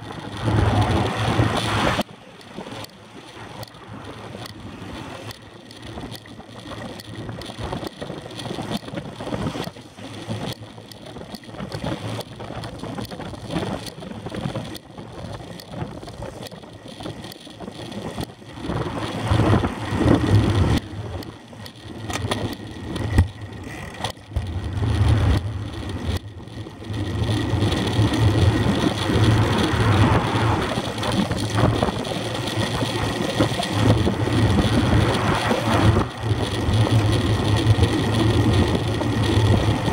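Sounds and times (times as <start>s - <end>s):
wind rushing over microphone: 0.0s - 2.1s, 11.1s - 21.3s, 21.9s - 39.9s
tyres rumbling on road: 0.0s - 39.9s
cars passing: 28.5s - 31.2s.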